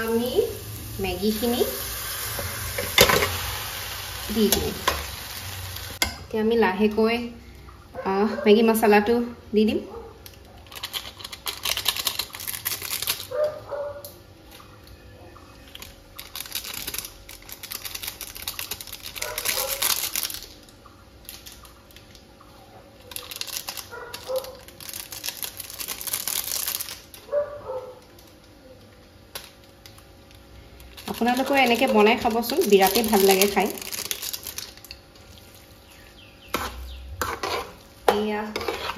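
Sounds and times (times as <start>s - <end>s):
seasoning packet rustling: 10.6s - 13.5s, 15.7s - 20.6s, 23.0s - 27.4s, 29.4s - 38.9s.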